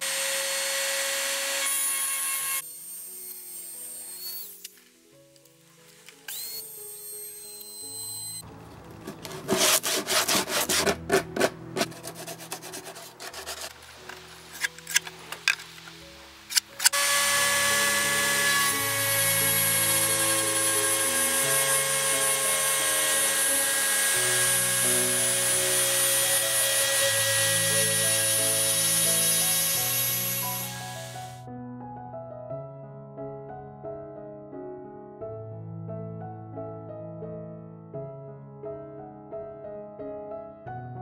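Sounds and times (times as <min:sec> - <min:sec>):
background music: 0:01.2 - 0:41.0
hand-sanding wood: 0:09.2 - 0:13.8.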